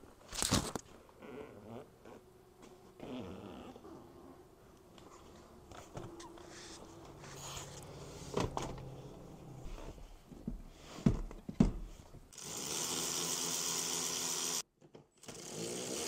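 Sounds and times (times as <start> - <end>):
small electric motor whining: 12.4 - 14.6.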